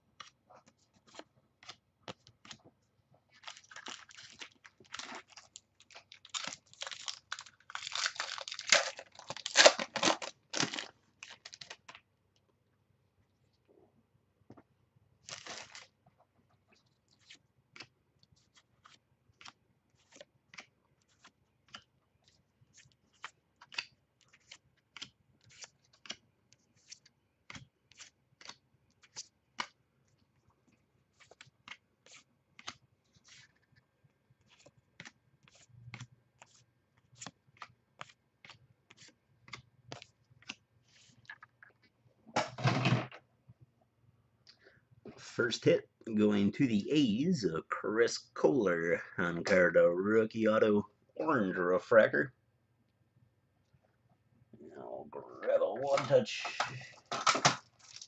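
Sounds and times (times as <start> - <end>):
cards rustling: 0.1 - 12.1, 15.2 - 15.9, 16.7 - 41.8.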